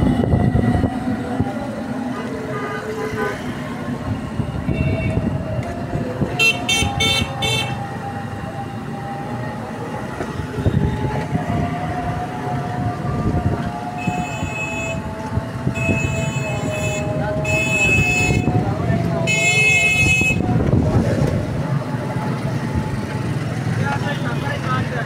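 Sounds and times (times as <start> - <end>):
road traffic: 0.0 - 25.0
vehicle horns honking: 2.5 - 3.6, 6.3 - 7.8, 14.0 - 15.1, 15.8 - 18.6, 19.2 - 20.4.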